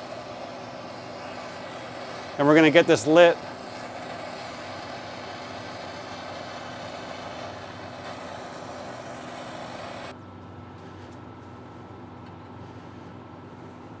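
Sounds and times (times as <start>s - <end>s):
gas torch flame hissing: 0.0s - 10.2s.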